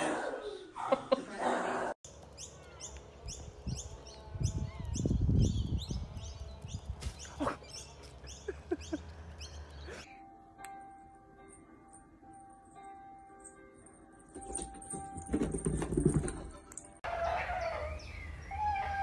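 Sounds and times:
bird chirping: 2.1s - 10.1s, 17.2s - 19.0s.

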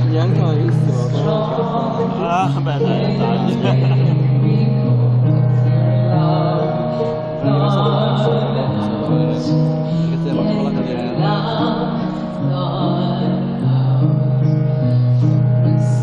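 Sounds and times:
slow ballad over loudspeakers: 0.0s - 16.0s
woman singing: 0.0s - 16.0s.

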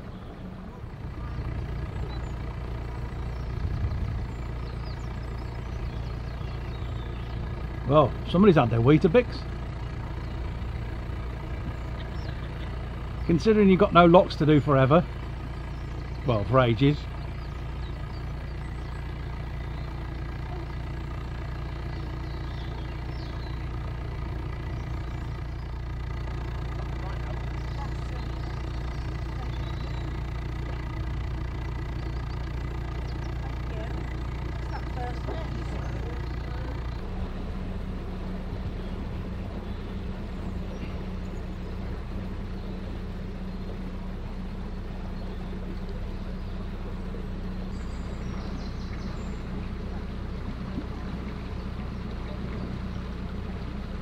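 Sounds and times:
water and wind noise: 0.0s - 9.6s, 33.3s - 54.0s
boat diesel engine running: 0.0s - 54.0s.

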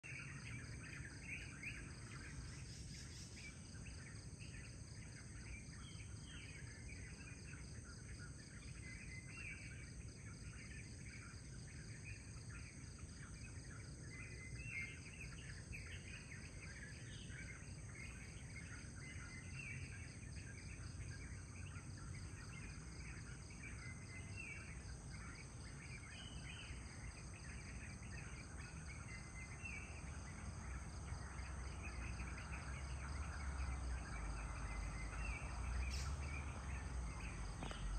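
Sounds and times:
bird chirps and calls: 31.7s - 37.9s.

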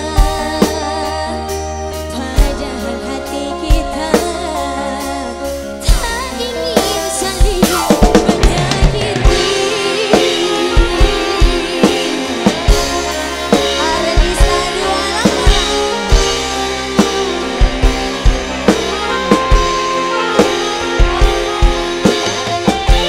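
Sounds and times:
drum kit beat: 0.0s - 23.0s
live band playing: 0.0s - 23.0s.

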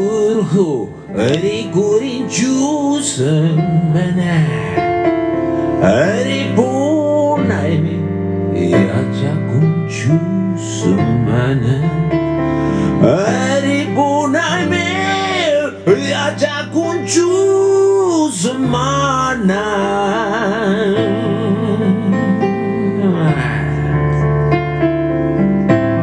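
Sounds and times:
man singing blues into microphone: 0.0s - 5.1s, 5.8s - 24.4s
band playing: 12.7s - 26.0s.

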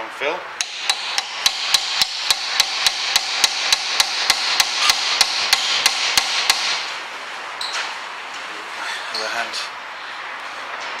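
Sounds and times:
hammer striking screwdriver: 0.6s - 6.9s.

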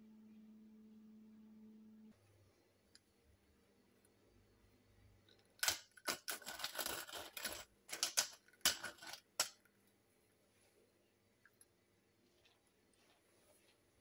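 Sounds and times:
pepper mill grinding: 5.4s - 9.6s.

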